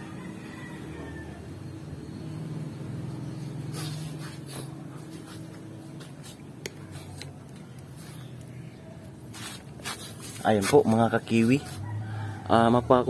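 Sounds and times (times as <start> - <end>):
light tool clicks and taps: 6.6 - 8.5.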